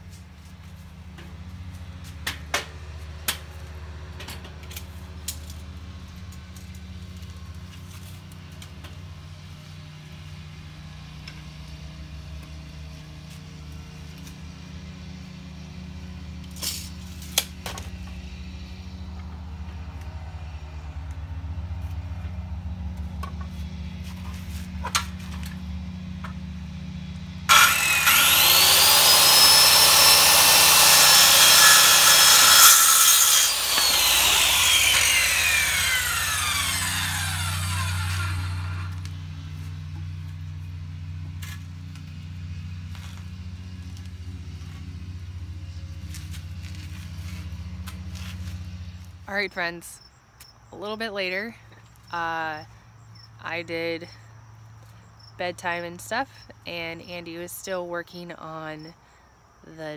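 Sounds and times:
low engine hum: 0.0s - 31.4s, 33.5s - 49.2s
circular saw cutting wood: 27.5s - 39.1s.

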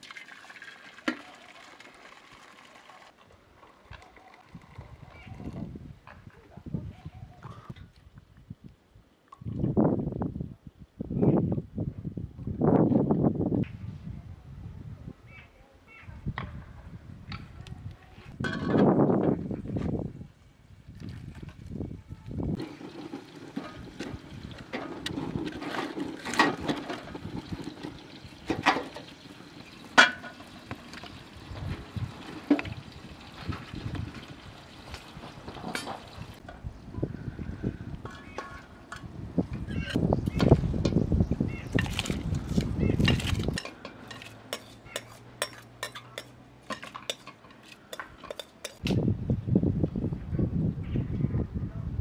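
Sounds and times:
metal spoon clinking against bowl: 43.6s - 48.8s.

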